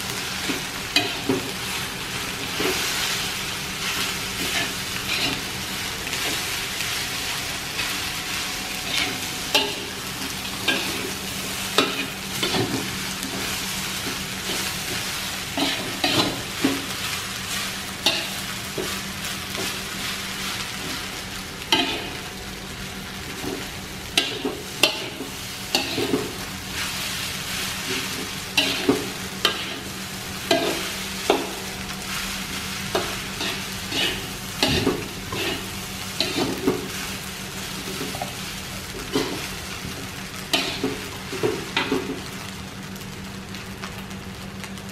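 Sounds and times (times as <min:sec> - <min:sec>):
food sizzling: 0:00.0 - 0:44.9
metal spatula scraping wok: 0:03.9 - 0:05.5, 0:07.7 - 0:13.8, 0:14.4 - 0:16.9, 0:24.2 - 0:26.2, 0:27.8 - 0:29.9, 0:32.9 - 0:37.0, 0:40.5 - 0:40.9.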